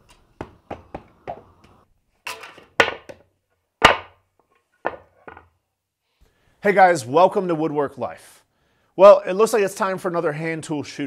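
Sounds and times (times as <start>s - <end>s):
wooden board knocking on concrete: 3.8s - 4.2s, 4.8s - 5.5s.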